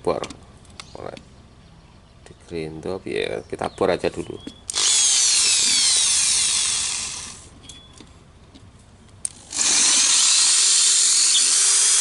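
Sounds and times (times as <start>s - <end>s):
electric drill boring into steel: 4.7s - 7.5s, 9.3s - 12.0s.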